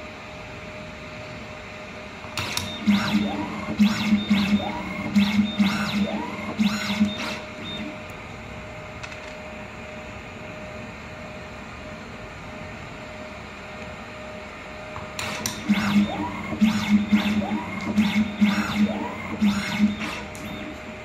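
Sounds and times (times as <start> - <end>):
sharp mechanical clicks: 2.4 - 7.9, 15.2 - 20.6
motor whirs rising in pitch: 2.8 - 8.0, 15.6 - 20.7.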